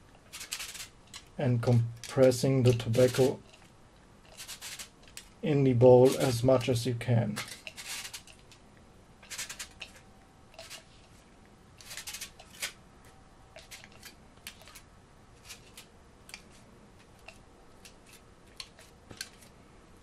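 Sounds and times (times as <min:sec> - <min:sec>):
aluminium foil crinkling: 0:00.3 - 0:01.4, 0:02.0 - 0:05.4, 0:07.4 - 0:08.6, 0:09.2 - 0:11.2, 0:11.8 - 0:12.8.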